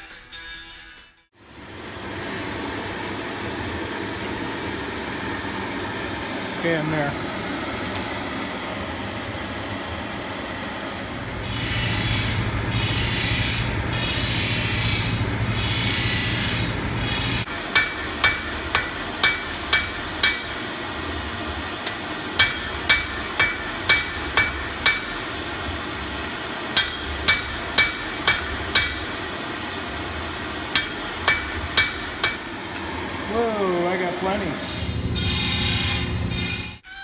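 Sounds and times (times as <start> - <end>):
hammer striking steel on anvil: 17.5 - 20.8, 21.8 - 25.4, 26.8 - 29.3, 30.7 - 32.7.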